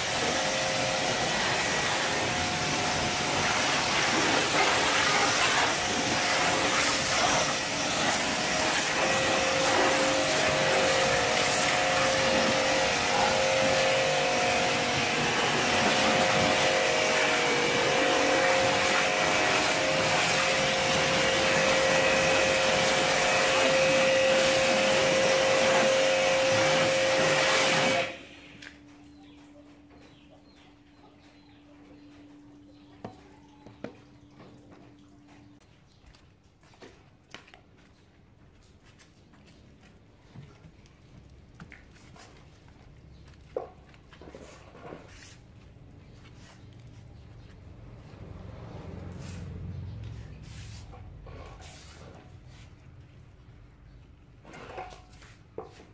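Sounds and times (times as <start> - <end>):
water jet hissing: 0.0 - 28.6
pressure washer motor whining: 0.0 - 28.8.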